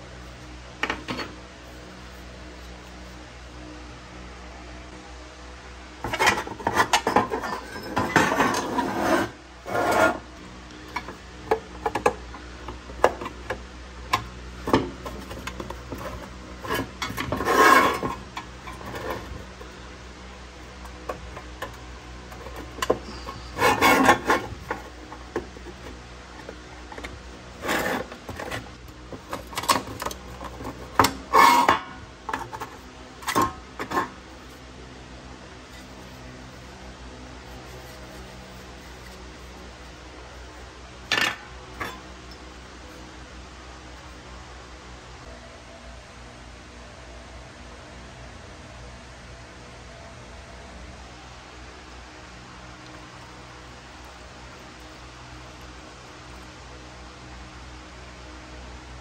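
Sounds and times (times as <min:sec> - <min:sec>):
low background hum: 0:00.0 - 0:59.0
hand scraping a workpiece: 0:06.0 - 0:34.7, 0:35.5 - 0:42.4.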